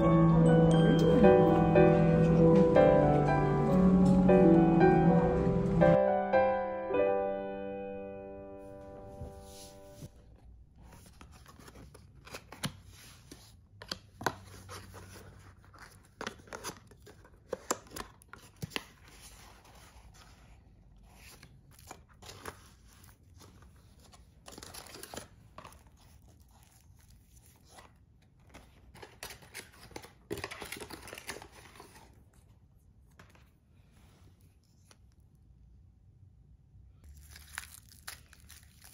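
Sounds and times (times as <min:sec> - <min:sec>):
paper wrapping rustling: 0:08.9 - 0:35.1, 0:37.0 - 0:38.9.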